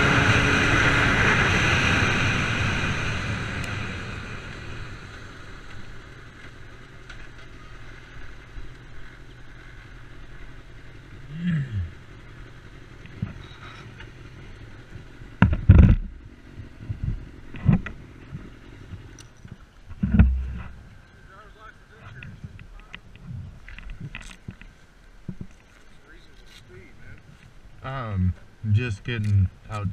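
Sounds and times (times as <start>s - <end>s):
motorcycle engine idling: 4.5s - 19.4s
knocks and thumps handling bike: 15.4s - 16.2s, 16.8s - 20.8s.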